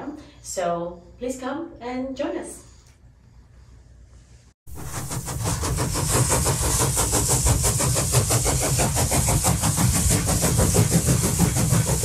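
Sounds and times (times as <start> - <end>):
machine-like pulsing rumble: 4.7 - 12.0.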